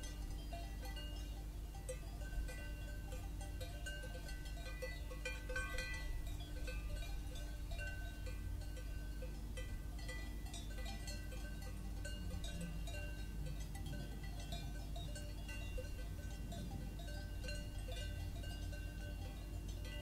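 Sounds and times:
cowbells clanking: 0:00.0 - 0:20.0
steady low hum: 0:00.0 - 0:20.0.

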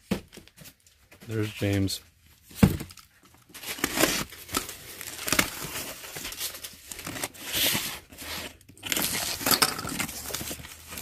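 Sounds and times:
tape tearing: 0:03.5 - 0:11.0.

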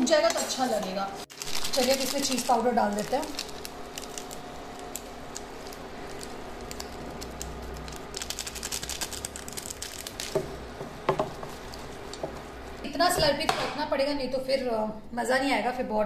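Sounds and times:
faint steady hum: 0:00.0 - 0:16.0
foil sachet crinkling: 0:01.3 - 0:12.9.

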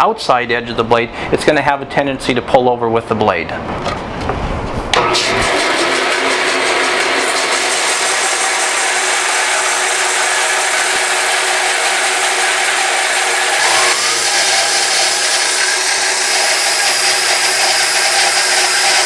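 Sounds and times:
bandsaw cutting log: 0:05.0 - 0:19.0.

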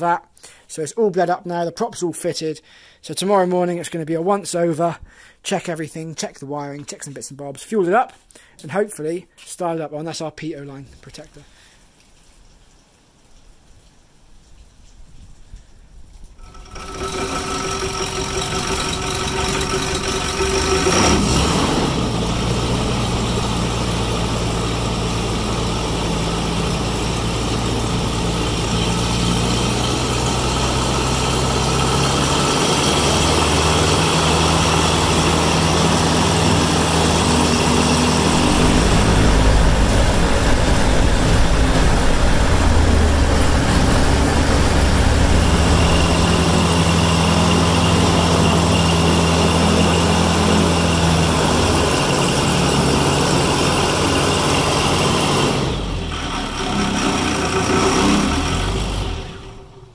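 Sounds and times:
aircraft engine running: 0:16.5 - 0:59.7.

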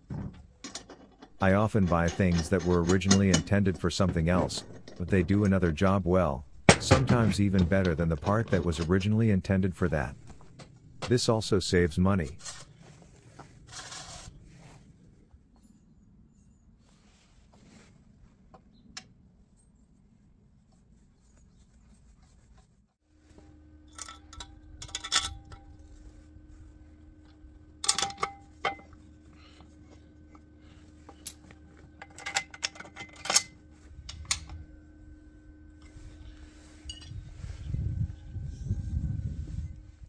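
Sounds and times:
faint low hum: 0:00.2 - 0:40.0
metal parts clinking and knocking: 0:00.3 - 0:05.6, 0:06.5 - 0:09.1, 0:23.9 - 0:25.8, 0:27.8 - 0:29.0, 0:31.1 - 0:34.6.

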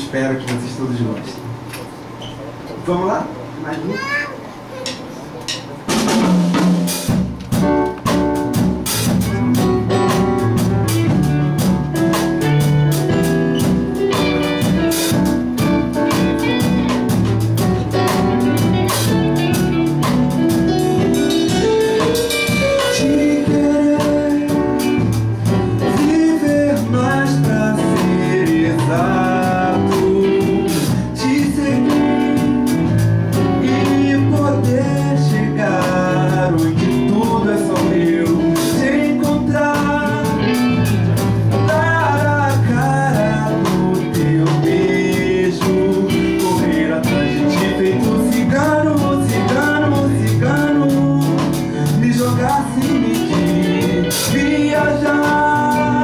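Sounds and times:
live band playing: 0:03.8 - 0:56.0
man singing into a microphone: 0:22.9 - 0:25.2, 0:25.8 - 0:32.6, 0:33.6 - 0:40.9, 0:41.6 - 0:56.0.

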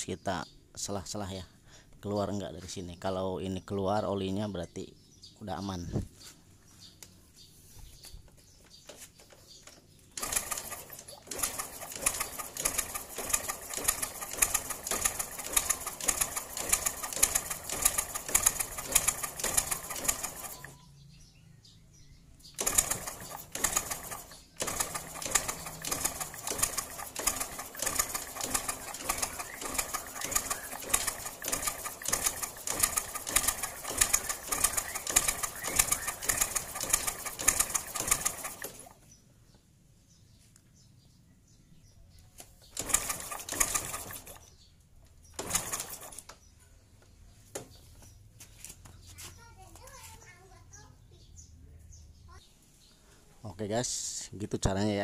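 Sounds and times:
engine being cranked over: 0:10.1 - 0:20.8, 0:22.4 - 0:39.0, 0:42.6 - 0:44.6, 0:45.3 - 0:46.4.

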